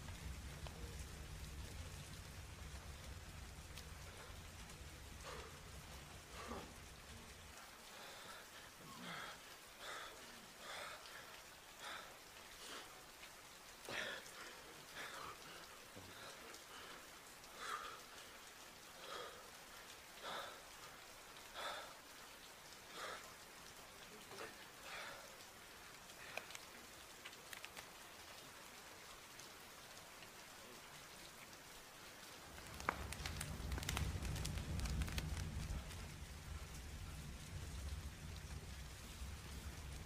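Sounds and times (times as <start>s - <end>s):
steady rain falling: 0.0s - 40.0s
man breathing heavily: 7.5s - 13.2s, 13.8s - 23.6s.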